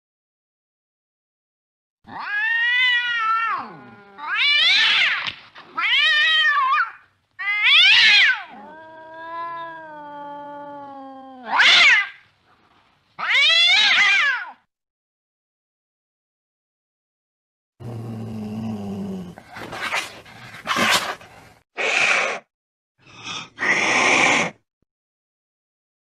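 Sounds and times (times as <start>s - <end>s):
cat meowing: 2.1s - 5.2s, 5.8s - 12.2s, 13.2s - 14.6s.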